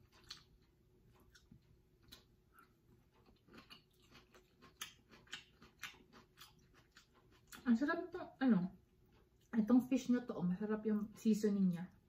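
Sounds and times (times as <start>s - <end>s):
chewing mouth clicks: 0.0s - 7.6s.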